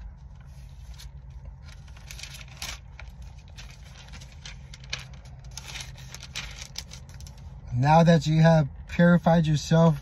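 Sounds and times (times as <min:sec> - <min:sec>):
book pages flipping and rustling: 0:00.0 - 0:07.4
steady low hum: 0:00.0 - 0:10.0.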